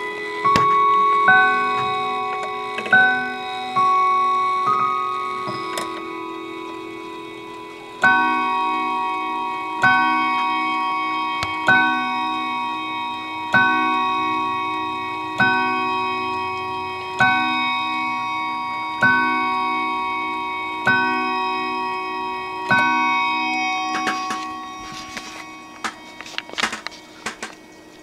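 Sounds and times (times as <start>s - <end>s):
mantel clock striking: 0.0s - 27.5s.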